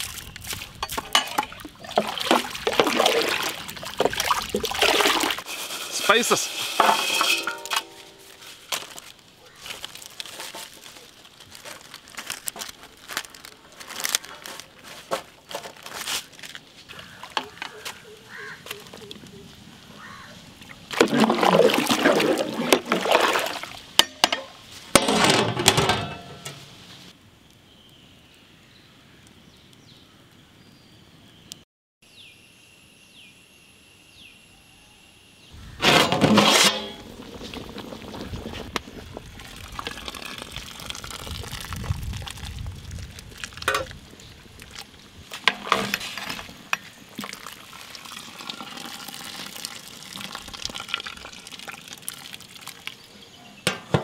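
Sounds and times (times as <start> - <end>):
water sloshing and pouring: 0.0 - 9.1, 20.6 - 24.4, 35.8 - 53.2.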